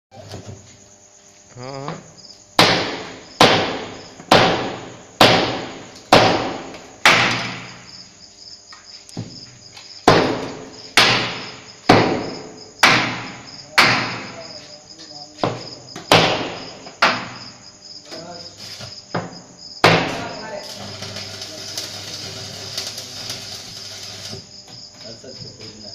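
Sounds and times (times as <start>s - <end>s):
hammer blows ringing on steel: 2.6s - 7.8s, 10.1s - 14.5s.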